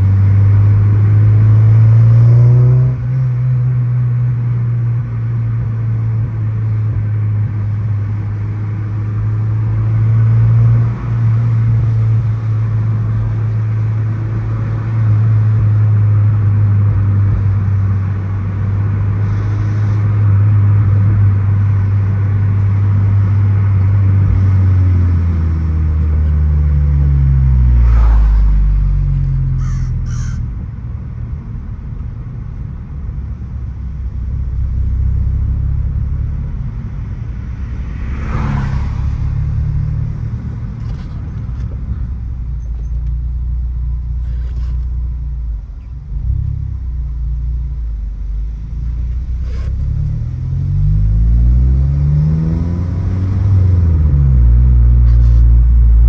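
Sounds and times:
car exhaust rumbling: 0.0s - 38.1s, 39.0s - 56.0s.

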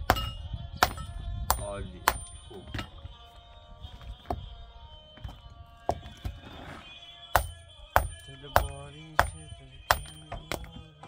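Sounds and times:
hammer striking stone: 0.0s - 3.0s, 7.4s - 10.8s
background music: 0.0s - 11.0s.

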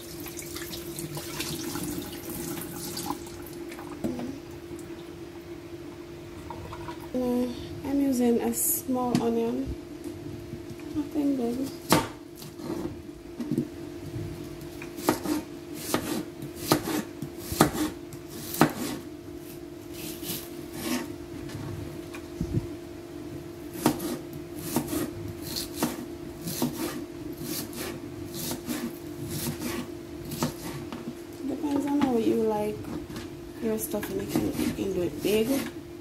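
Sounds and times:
steady low hum: 0.0s - 36.0s
knife chopping on plastic board: 15.0s - 19.0s, 23.8s - 30.9s.

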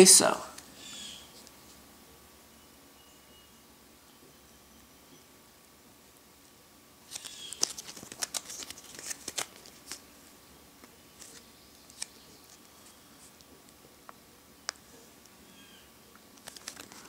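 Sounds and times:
plastic coin flip crinkling: 7.1s - 10.1s, 10.8s - 13.4s, 16.3s - 17.0s.

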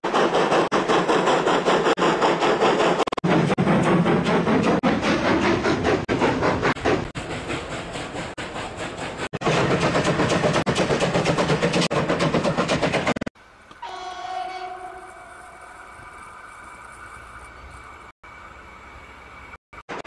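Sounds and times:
train rhythmic clatter: 0.0s - 13.8s
train warning signal: 13.8s - 17.4s.

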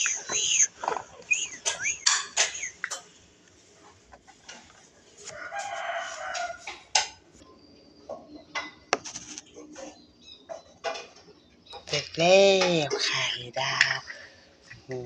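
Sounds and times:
drawn-out animal call: 0.0s - 3.0s.

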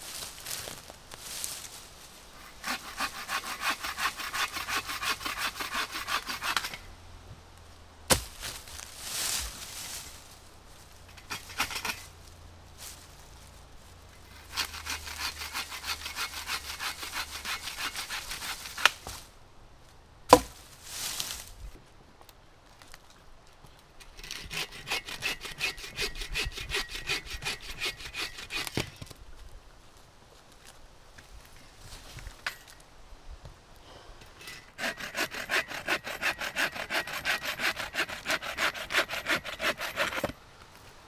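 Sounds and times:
hand saw cutting wood: 2.4s - 6.9s, 11.1s - 12.1s, 14.3s - 19.2s, 24.0s - 29.1s, 34.4s - 40.4s.

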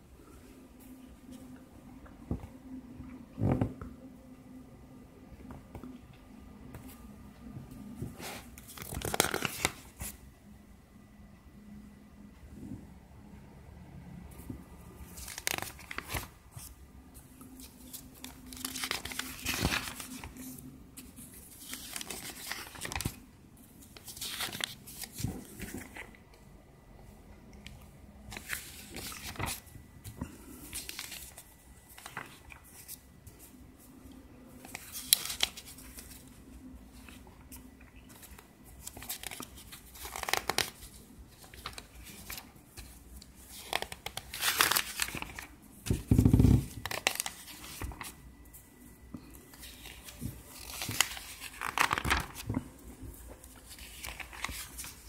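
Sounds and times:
paper pages rustling: 8.0s - 10.2s, 14.4s - 23.2s, 23.8s - 26.2s, 27.6s - 34.0s, 34.6s - 48.6s, 49.2s - 55.0s.

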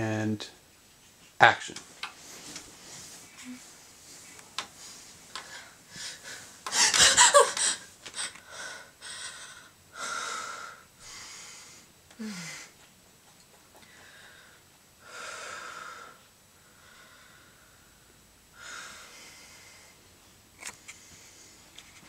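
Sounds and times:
woman breathing hard: 5.3s - 12.8s, 13.8s - 20.0s
woman gasping: 12.2s - 12.7s
woman sighing: 12.2s - 12.7s.

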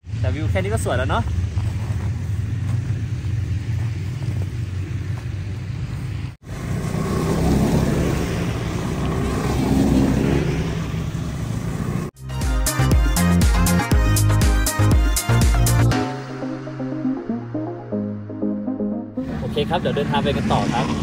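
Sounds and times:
snowmobile engines droning: 0.0s - 12.2s, 19.2s - 21.0s.

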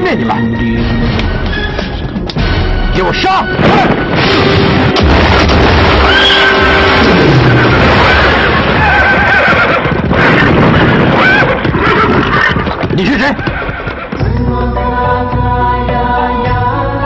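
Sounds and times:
dense continuous din: 2.3s - 14.3s
horses neighing: 7.3s - 14.2s.

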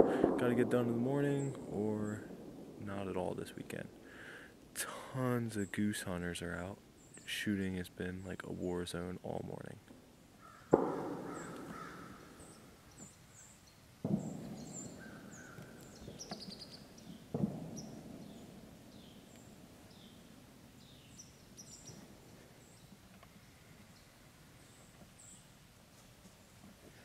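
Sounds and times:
distant shotgun shots echoing: 0.0s - 3.3s, 10.6s - 12.8s, 14.0s - 20.4s
small birds chirping: 3.0s - 9.8s, 10.4s - 27.0s.

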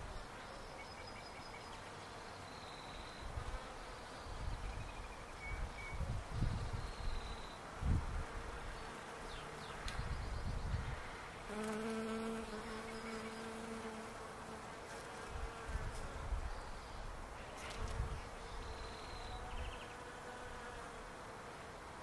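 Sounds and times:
bee flying close: 10.8s - 16.4s, 17.4s - 21.6s
bees buzzing: 11.0s - 16.3s.

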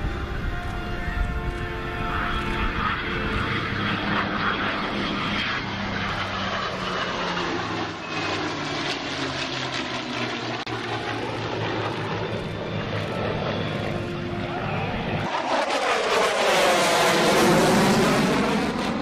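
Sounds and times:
piston aircraft engines droning: 0.0s - 19.0s
jet rushing noise: 13.8s - 19.0s.

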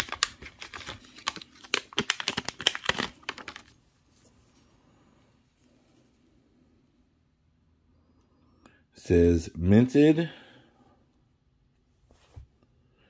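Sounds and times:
plastic packaging crinkling: 0.0s - 3.9s.

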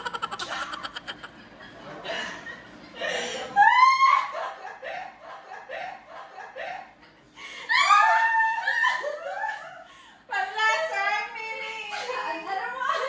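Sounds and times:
people laughing: 0.0s - 9.9s.

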